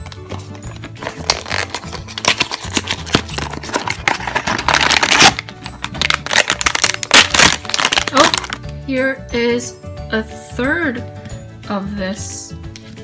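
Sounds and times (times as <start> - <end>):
quiet background music: 0.0 - 13.0
cardboard box opening: 0.5 - 5.4
foil bag crinkling and tearing: 0.7 - 8.6.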